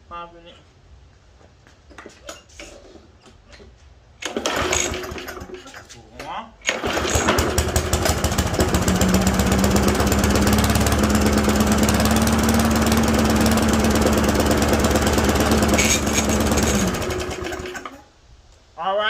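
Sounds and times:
lawn mower engine running: 4.2s - 6.0s, 6.6s - 18.1s.

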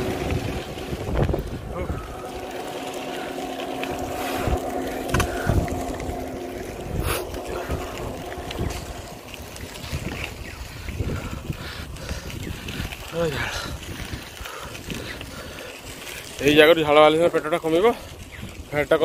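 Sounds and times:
steady motor drone: 0.0s - 18.2s
wind buffeting microphone: 0.0s - 19.0s.

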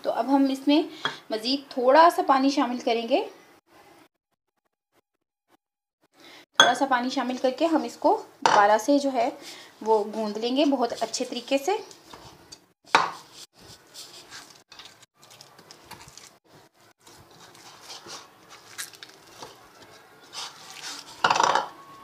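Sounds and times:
hands kneading dough: 9.9s - 21.2s.

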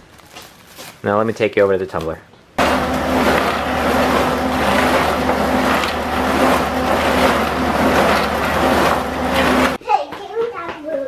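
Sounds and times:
grit and water churning in drum: 2.6s - 9.8s
motor hum: 2.6s - 9.8s.

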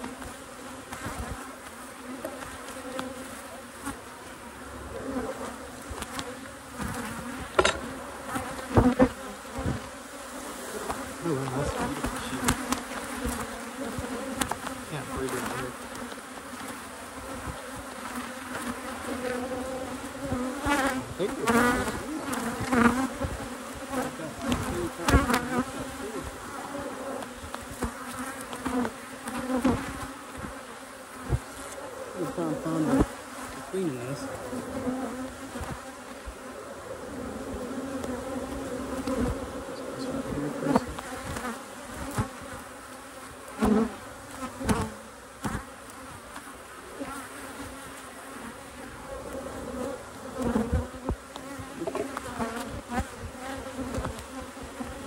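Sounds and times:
bees humming: 0.0s - 55.0s.

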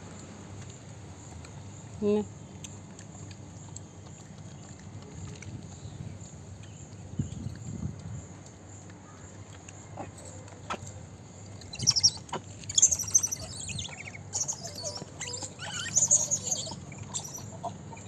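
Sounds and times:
monkeys squeaking and chirping: 11.6s - 18.0s.

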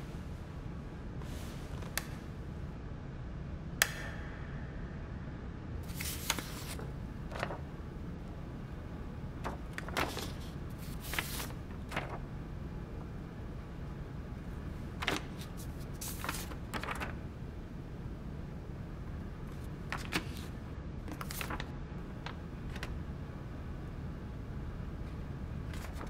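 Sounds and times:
low room hum: 0.0s - 26.0s
paper cards rustling: 5.8s - 7.7s, 9.4s - 12.2s, 14.9s - 17.2s, 19.5s - 23.0s, 25.7s - 26.0s.

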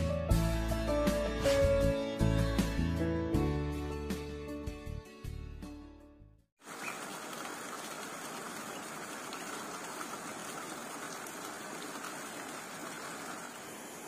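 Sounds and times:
stream rushing: 6.6s - 14.0s.

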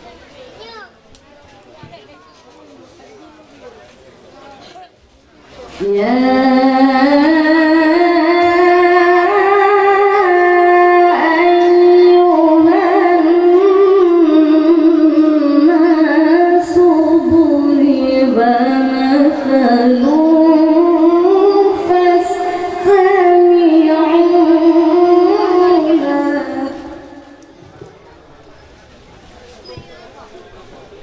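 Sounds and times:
high voice reciting melodically: 5.8s - 27.5s.

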